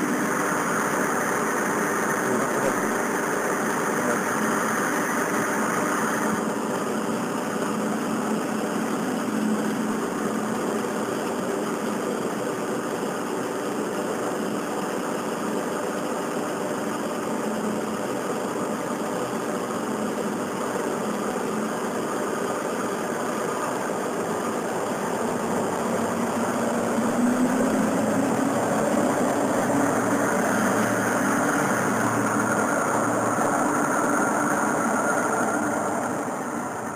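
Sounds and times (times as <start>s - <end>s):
diesel railcar engines idling: 24.8s - 36.9s.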